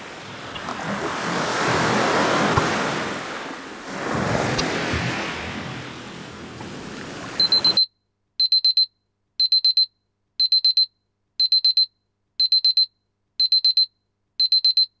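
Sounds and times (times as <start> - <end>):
ocean wave sound: 0.0 - 7.8
electronic alarm beeping: 7.4 - 15.0.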